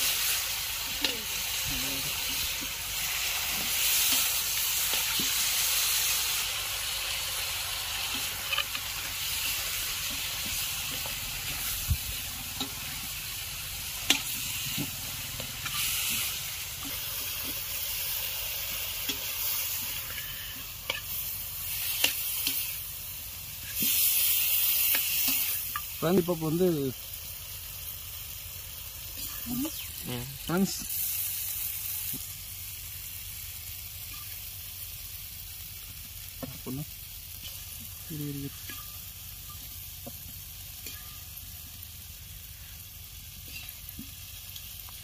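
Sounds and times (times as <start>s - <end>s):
chicken deep-frying in oil: 0.0s - 45.0s.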